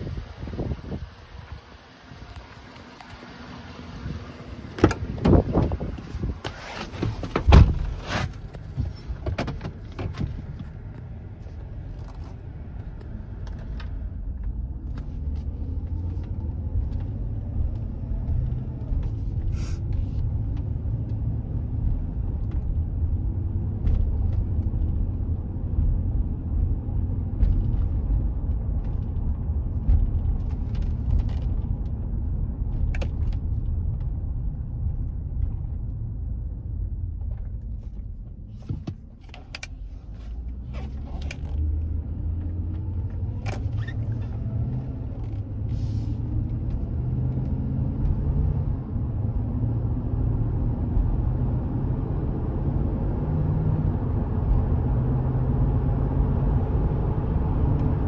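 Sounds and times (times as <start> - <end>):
engine and road rumble: 0.0 - 58.0.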